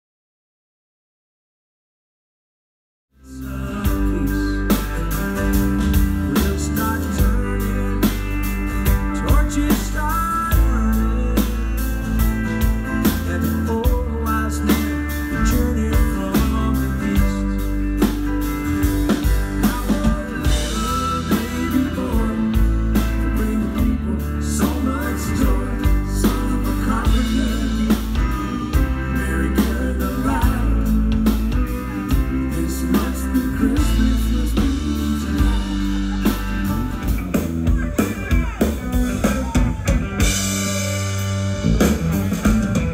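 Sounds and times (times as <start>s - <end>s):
pop-rock band playing: 3.2s - 42.9s
steady drum beat: 3.8s - 42.9s
woman singing lead: 19.6s - 36.9s.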